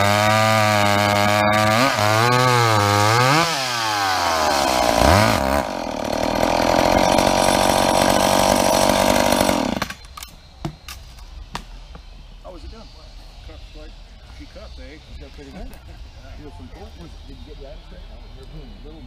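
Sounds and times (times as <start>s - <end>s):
chainsaw cutting log: 0.0s - 10.0s.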